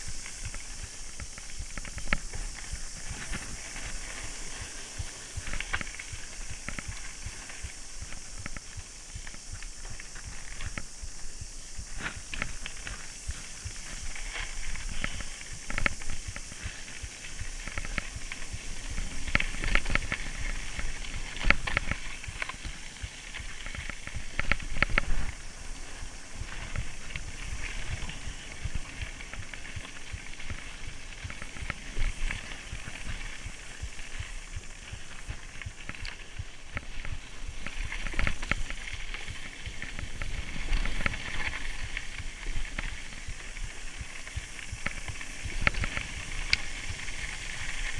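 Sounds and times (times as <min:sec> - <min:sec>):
bike rattling and knocking: 0:00.0 - 0:47.9
steady hiss: 0:00.0 - 0:47.9.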